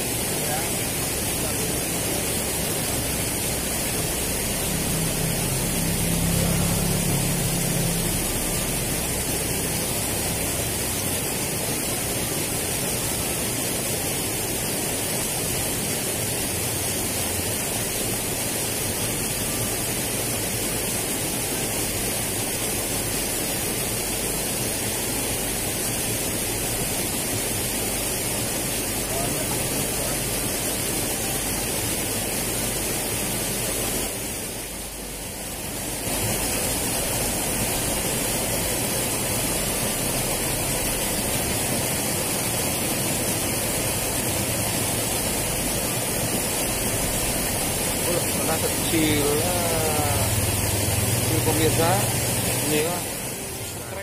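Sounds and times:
water rushing in channel: 0:00.0 - 0:54.0
low hum: 0:01.5 - 0:10.7.

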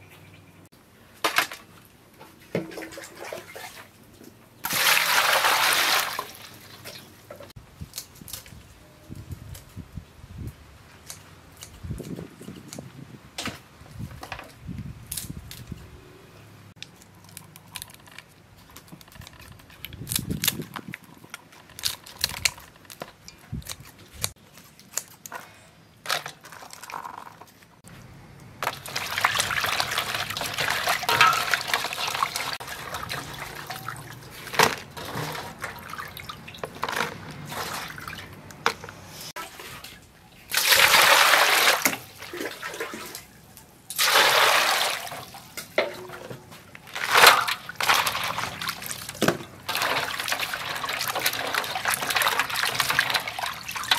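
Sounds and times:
water sloshing in steel bowl: 0:28.6 - 0:38.4, 0:43.9 - 0:53.9.

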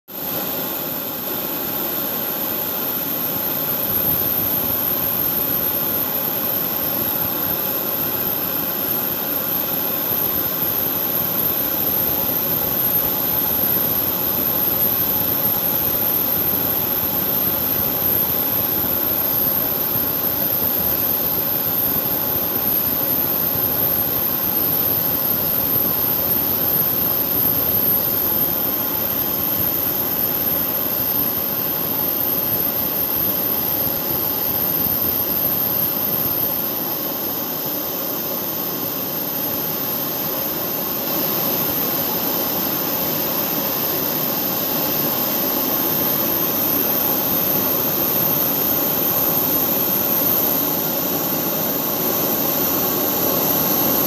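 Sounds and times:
jet engines whining: 0:00.2 - 0:54.0.

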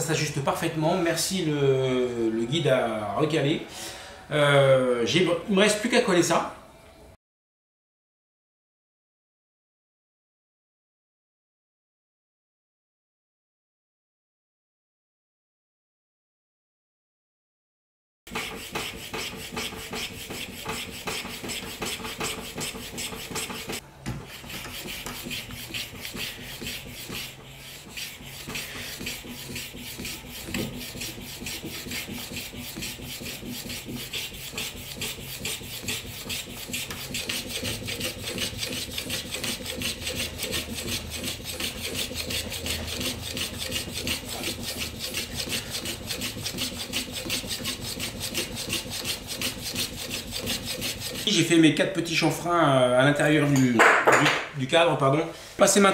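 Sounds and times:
hand plane cutting wood: 0:18.3 - 0:51.5.

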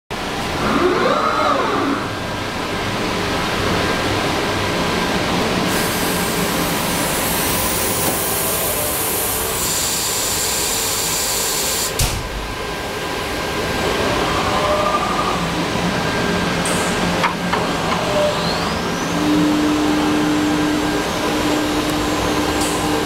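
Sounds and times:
cnc machine running: 0:17.4 - 0:23.0.

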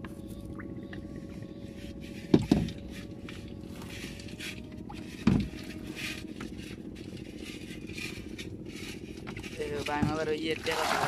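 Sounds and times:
steady low hum: 0:00.0 - 0:11.0
dull knocks: 0:02.3 - 0:02.8, 0:05.2 - 0:05.6.

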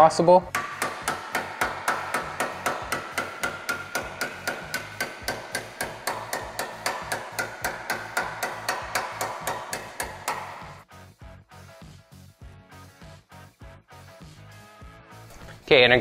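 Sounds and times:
hammer striking steel panel: 0:00.5 - 0:10.8.

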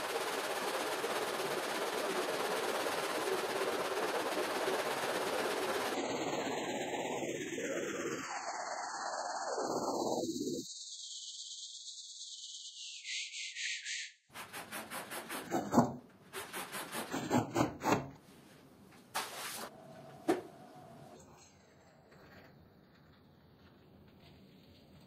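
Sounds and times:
squeegee scraping wet rug: 0:14.3 - 0:18.1.

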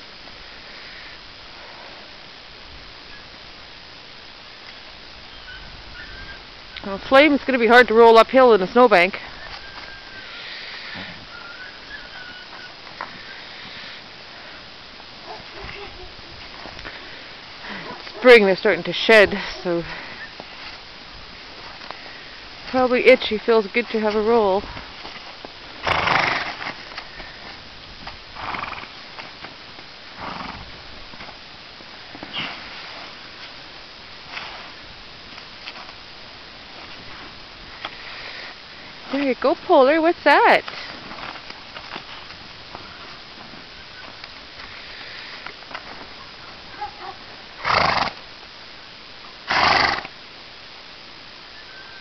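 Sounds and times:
horse breathing: 0:09.2 - 0:11.6, 0:16.6 - 0:18.3, 0:18.9 - 0:20.8
horse blowing through nostrils: 0:10.2 - 0:11.4, 0:25.8 - 0:26.8, 0:28.4 - 0:28.9, 0:47.6 - 0:48.2, 0:49.5 - 0:50.1
horse thrashing in snow: 0:22.6 - 0:27.6.

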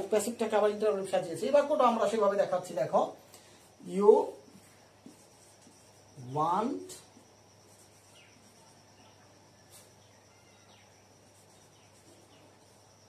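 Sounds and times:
marker squeaking on whiteboard: 0:04.5 - 0:06.2, 0:07.1 - 0:12.9
faint high tone: 0:08.6 - 0:11.0.

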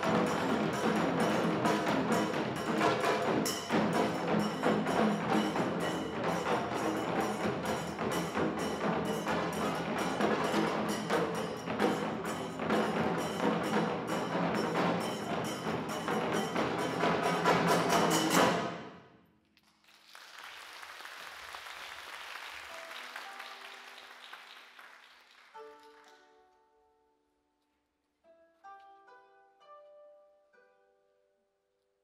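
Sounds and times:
taiko drum ensemble: 0:00.0 - 0:18.9
audience applauding: 0:19.6 - 0:26.3.

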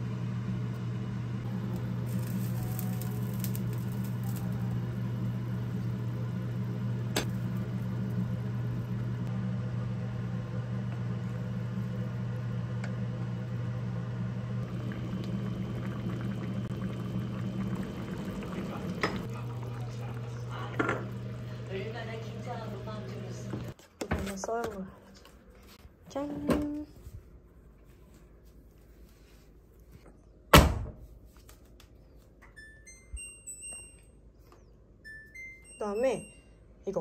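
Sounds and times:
appliance motor humming: 0:00.0 - 0:23.8.

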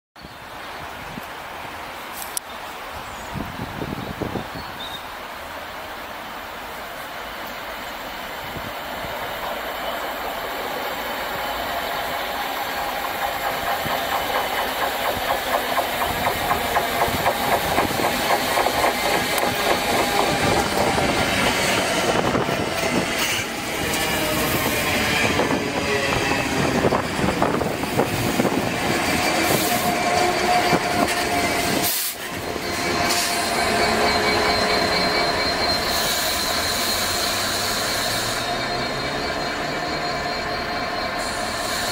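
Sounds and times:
diesel locomotive engine drone: 0:05.0 - 0:41.9
high wheel squeal: 0:09.6 - 0:41.9
train wheels clattering over rails: 0:11.7 - 0:39.2.

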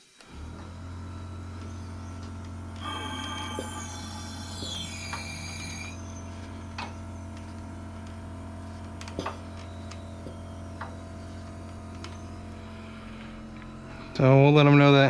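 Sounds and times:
steady low hum: 0:00.2 - 0:15.0
high whistling tones: 0:01.0 - 0:08.0.

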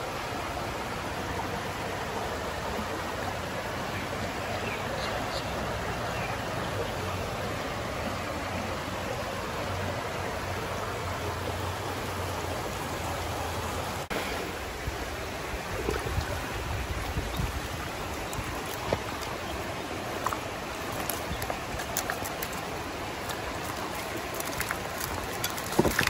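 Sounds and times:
creek water running: 0:00.0 - 0:26.0
water splashing and dripping: 0:14.9 - 0:26.0
fish slapping: 0:20.1 - 0:26.0.

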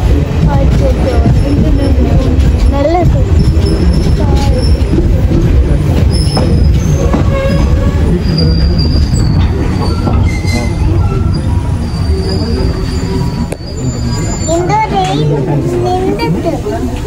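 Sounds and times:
train wheels rumbling on rails: 0:00.0 - 0:17.0
wheels squealing: 0:00.5 - 0:17.0.

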